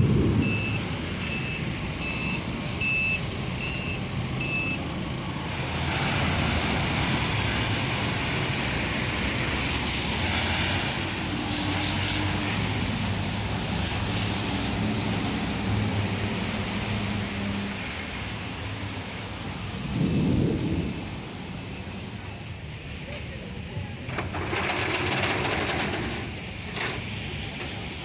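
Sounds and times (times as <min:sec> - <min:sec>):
tyres hissing on wet road: 0:00.0 - 0:28.0
reversing beeper: 0:00.4 - 0:04.8
engines running low: 0:22.3 - 0:28.0.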